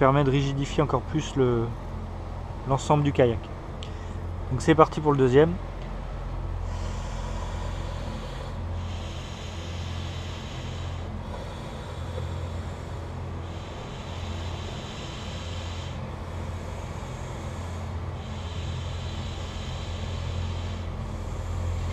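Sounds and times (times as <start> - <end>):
steady low hum: 0.0 - 21.9
airy blows inflating a tube: 6.6 - 21.9.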